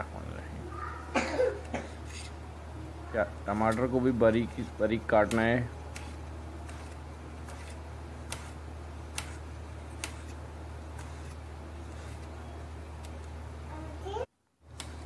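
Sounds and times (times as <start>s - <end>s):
steady low hum: 0.0s - 15.0s
knife slicing tomato: 3.6s - 13.2s.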